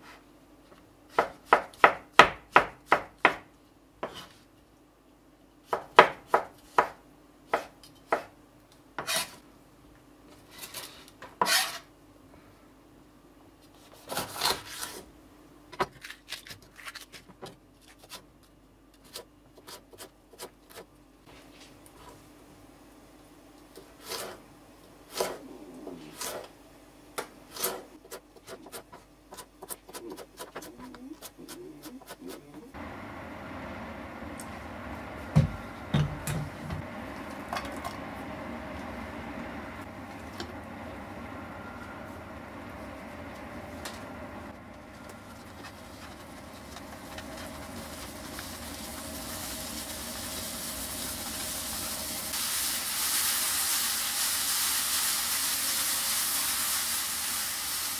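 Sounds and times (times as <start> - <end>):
knife scraping across board: 9.0 - 9.4, 10.5 - 11.9, 27.5 - 30.7.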